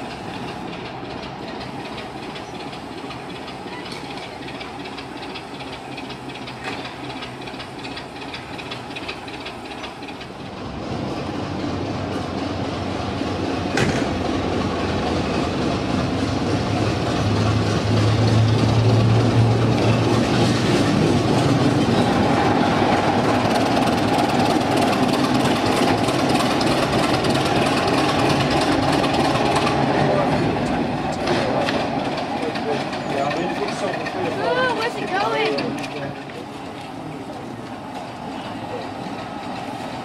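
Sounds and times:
diesel locomotive engine humming: 0.0 - 40.0.

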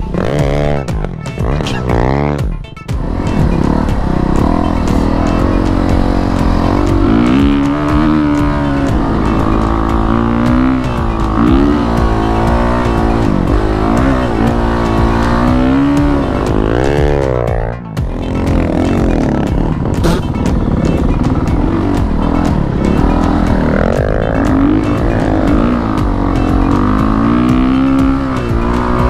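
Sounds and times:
dirt bike engine revving: 0.0 - 29.0.

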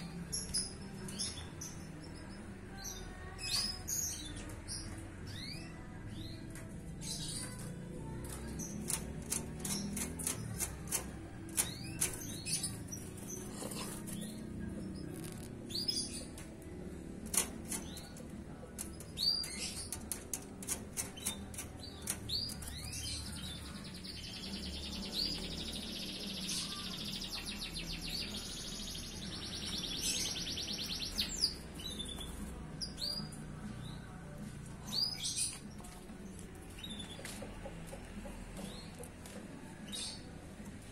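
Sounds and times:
canary chirps: 0.0 - 40.9
sharp clicks: 8.3 - 12.7, 16.3 - 23.6.

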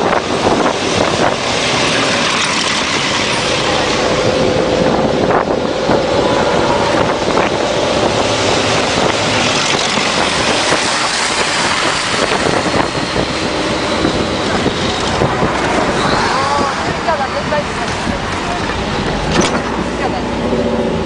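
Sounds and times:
tracked armoured vehicles passing: 0.0 - 21.0
wind on microphone: 0.0 - 21.0.

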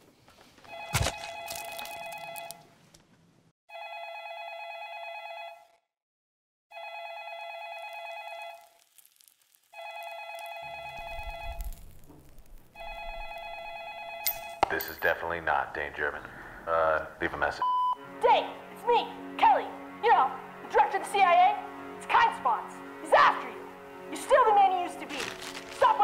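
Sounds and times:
telephone ringing: 0.7 - 2.6, 3.7 - 5.8, 6.7 - 8.7, 9.8 - 11.6, 12.8 - 14.8.

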